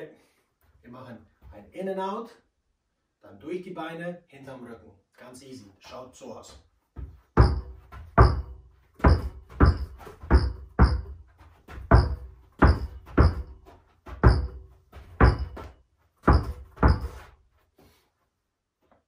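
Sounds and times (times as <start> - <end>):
basketball bouncing on carpet: 7.0 - 17.3.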